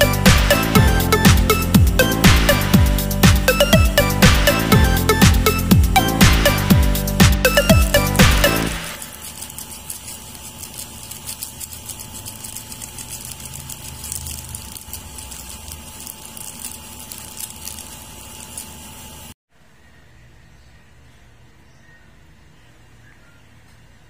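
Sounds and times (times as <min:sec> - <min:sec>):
background music: 0:00.0 - 0:09.0
soup boiling and bubbling: 0:09.0 - 0:19.4.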